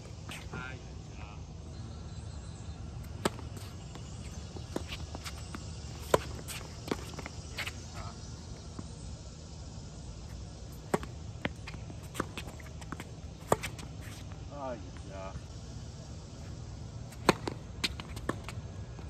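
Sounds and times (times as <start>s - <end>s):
tennis ball bounces: 3.0s - 7.8s, 10.8s - 13.9s, 17.2s - 18.6s
racket hitting tennis ball: 3.1s - 7.8s, 10.8s - 14.2s, 17.2s - 18.6s.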